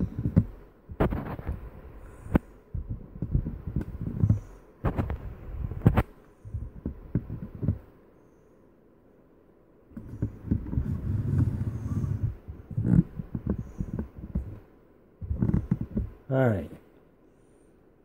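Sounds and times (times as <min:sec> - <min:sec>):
microphone handling thumps and rubbing: 0:00.0 - 0:07.9, 0:10.0 - 0:16.3.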